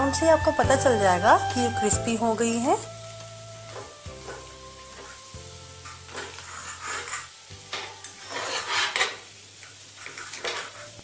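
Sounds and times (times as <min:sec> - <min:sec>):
soft background music: 0:00.0 - 0:09.3
patties sizzling in oil: 0:00.0 - 0:11.0
fork scraping a pan: 0:03.7 - 0:11.0.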